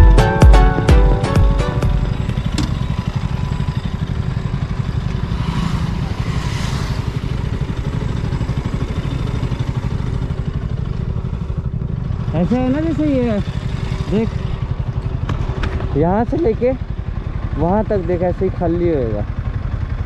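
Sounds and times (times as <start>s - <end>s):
motorcycle engine running at low revs: 0.0s - 20.0s.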